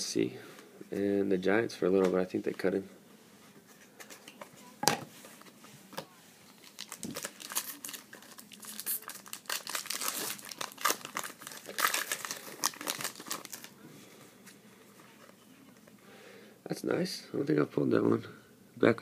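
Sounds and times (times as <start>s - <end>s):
foil wrapper tearing and crinkling: 6.6s - 13.7s.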